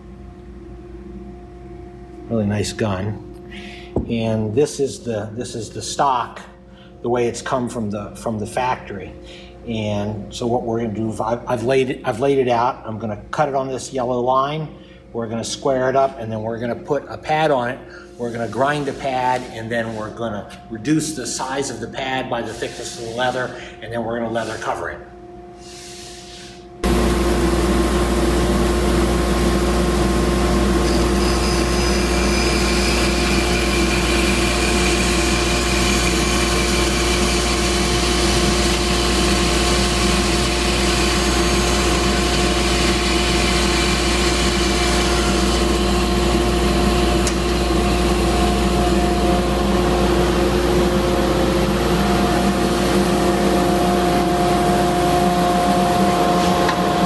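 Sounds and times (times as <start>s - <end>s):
bandsaw cutting wood: 29.4s - 49.0s.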